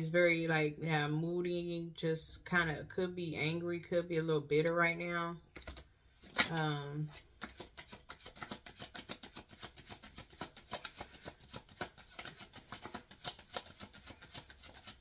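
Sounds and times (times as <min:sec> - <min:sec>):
cards being shuffled: 0:05.5 - 0:15.0.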